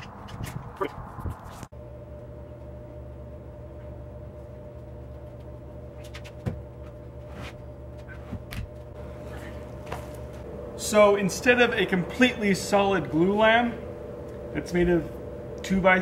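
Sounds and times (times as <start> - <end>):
workshop background hum: 0.0 - 16.0
footsteps: 5.2 - 10.5.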